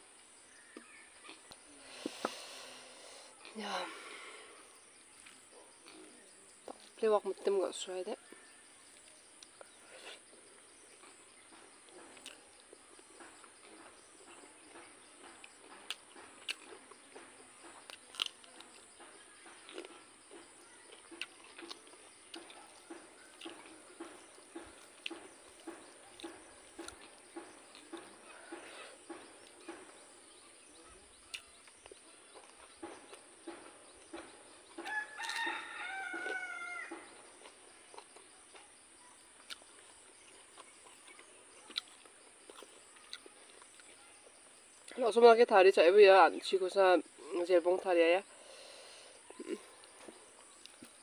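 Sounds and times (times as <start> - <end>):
soft chewing: 0.5 - 7.1, 8.2 - 45.0, 48.2 - 51.0
rooster crowing: 34.8 - 37.2.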